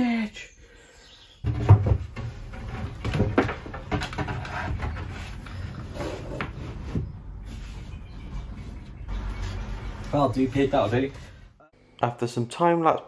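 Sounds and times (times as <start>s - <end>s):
wood scraping on wood: 1.5s - 11.5s.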